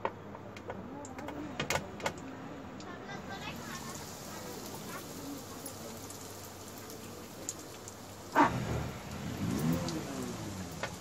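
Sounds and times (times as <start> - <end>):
hot oil sizzling and crackling: 3.2 - 11.0.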